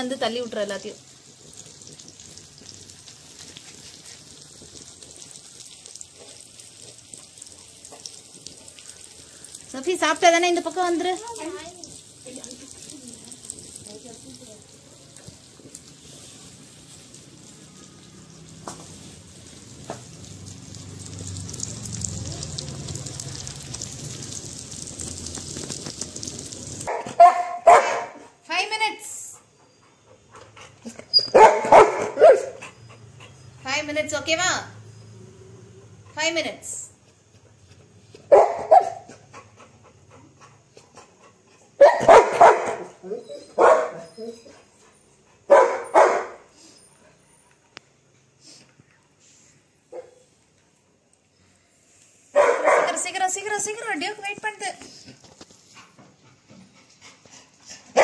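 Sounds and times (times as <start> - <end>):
fish sizzling in hot oil: 0.0 - 26.9
dog barking: 26.9 - 28.4, 31.3 - 32.6, 38.3 - 39.1, 41.8 - 44.1, 45.5 - 46.5, 49.9 - 50.2, 52.3 - 53.0.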